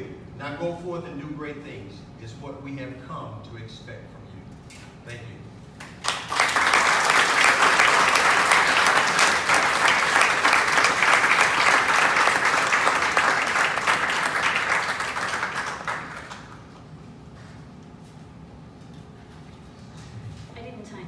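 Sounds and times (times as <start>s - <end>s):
audience applauding: 5.8s - 16.6s.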